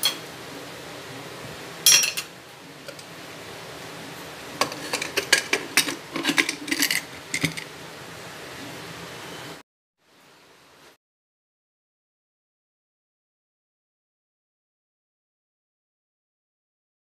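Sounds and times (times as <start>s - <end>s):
metal ladle clinking on pot: 1.9s - 2.3s
background hum: 1.9s - 8.0s.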